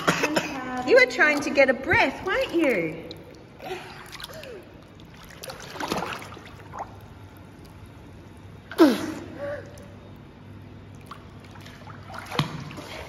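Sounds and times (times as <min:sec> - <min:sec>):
water splash: 0:01.3 - 0:07.1, 0:11.0 - 0:13.0.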